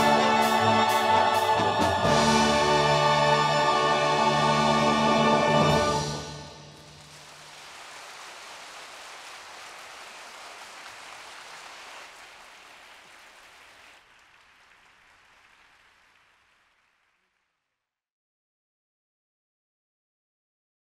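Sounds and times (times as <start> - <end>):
audience applauding: 6.8 - 17.4.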